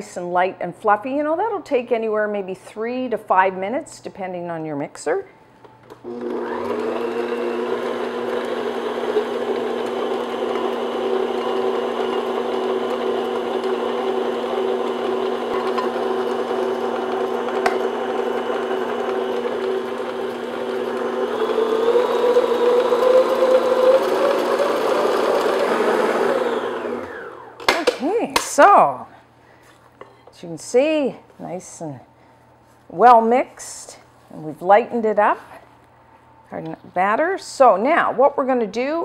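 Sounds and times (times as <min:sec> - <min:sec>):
stand mixer motor hum: 0:06.0 - 0:27.6.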